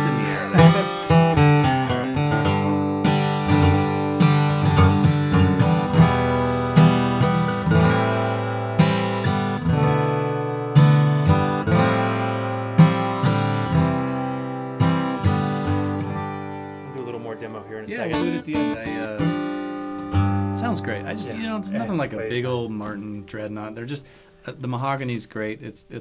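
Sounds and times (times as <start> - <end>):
acoustic guitar playing: 0.0 - 25.2.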